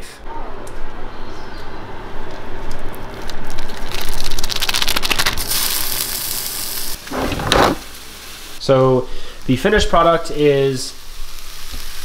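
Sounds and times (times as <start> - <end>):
meat sizzling in hot oil: 4.9 - 7.1, 10.2 - 12.0.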